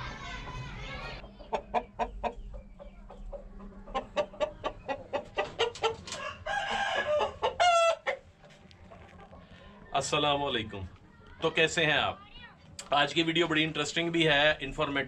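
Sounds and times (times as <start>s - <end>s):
chickens clucking: 0.0s - 12.0s
chicken squawking: 3.7s - 8.3s.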